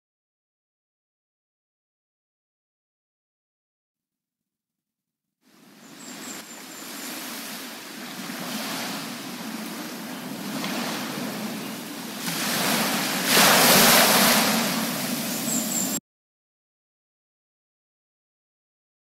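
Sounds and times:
waves washing onto beach: 0:05.5 - 0:16.0.

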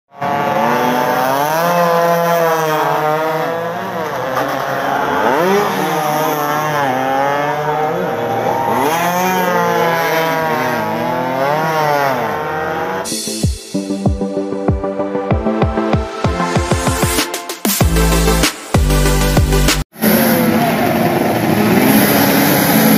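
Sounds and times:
motorcycle engines revving: 0:00.1 - 0:13.1, 0:17.9 - 0:22.9.

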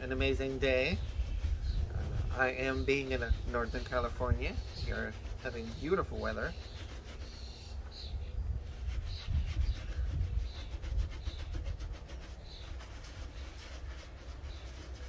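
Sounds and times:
low rumble: 0:00.0 - 0:12.4
brush scrubbing sneaker: 0:00.0 - 0:15.0.

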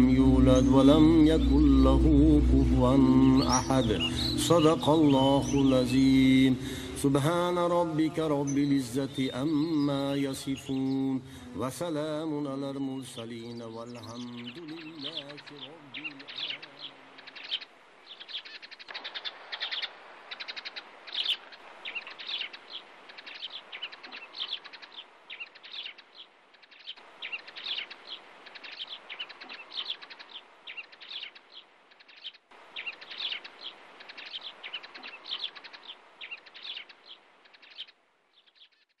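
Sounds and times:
flock of small birds chirping: 0:00.0 - 0:39.0.

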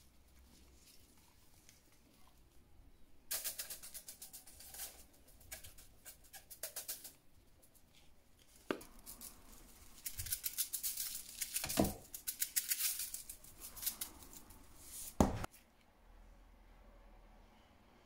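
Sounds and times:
powder pattering on foil: 0:03.3 - 0:07.8, 0:08.4 - 0:15.2.

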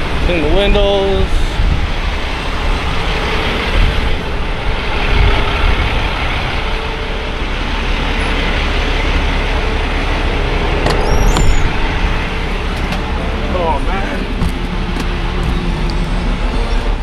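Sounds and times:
truck engine rumble: 0:00.0 - 0:17.0
high squeak: 0:10.9 - 0:11.8.

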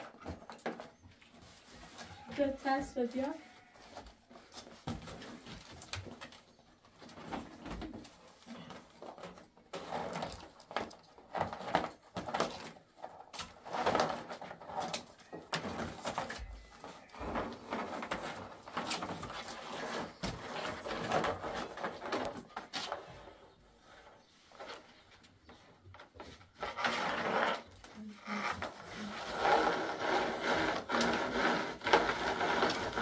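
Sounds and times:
cardboard rustling and scraping: 0:00.1 - 0:33.0
cord rubbing against cardboard: 0:09.3 - 0:33.0.

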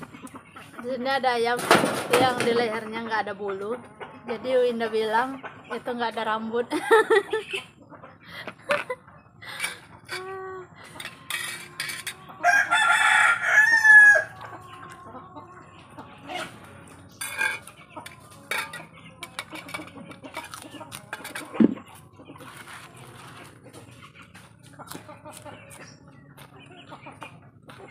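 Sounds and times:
rooster crowing: 0:12.4 - 0:14.4.

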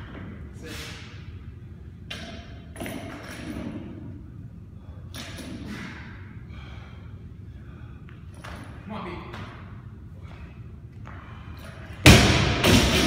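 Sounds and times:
low gym rumble: 0:00.0 - 0:13.0
barbell thuds with metallic clatter: 0:11.9 - 0:13.0.

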